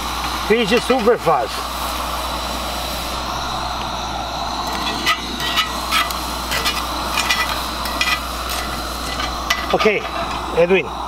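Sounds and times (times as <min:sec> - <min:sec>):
fish sizzling in oil: 0:04.5 - 0:10.5
metal tongs tapping pan: 0:04.8 - 0:10.1.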